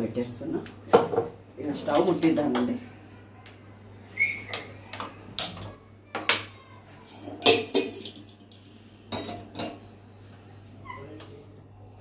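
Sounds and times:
metal pot clanking on grate: 0:07.2 - 0:08.4.

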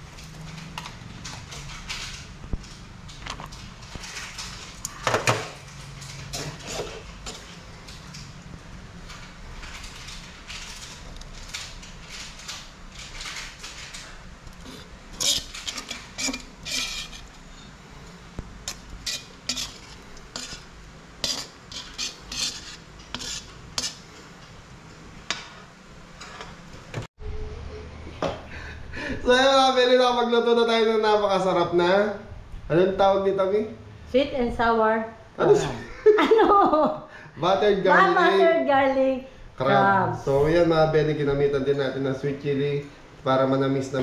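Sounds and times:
scraping sauce out of wok: 0:14.6 - 0:17.4, 0:18.7 - 0:24.0.

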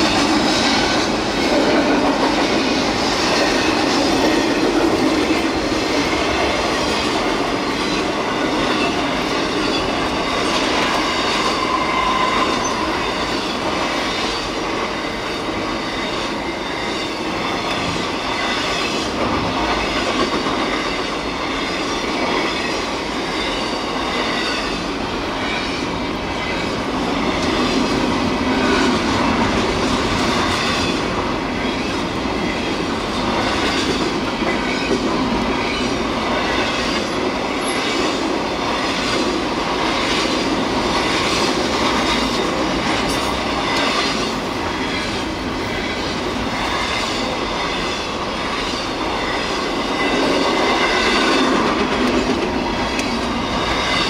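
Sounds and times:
train wheels rumbling on rails: 0:00.0 - 0:54.0
wheel squeal: 0:11.0 - 0:13.3.

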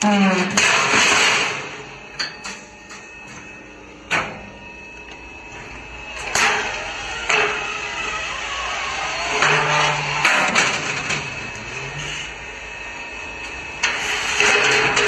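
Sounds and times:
roll forming machine clanking: 0:00.0 - 0:04.5, 0:08.8 - 0:12.0, 0:13.8 - 0:15.0
low hum: 0:00.0 - 0:15.0.

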